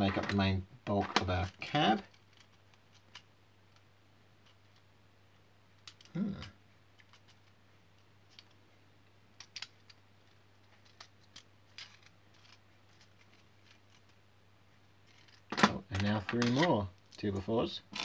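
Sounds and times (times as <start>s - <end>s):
plastic bricks clicking: 5.8s - 7.6s, 9.4s - 10.0s, 10.6s - 14.2s, 15.1s - 16.8s.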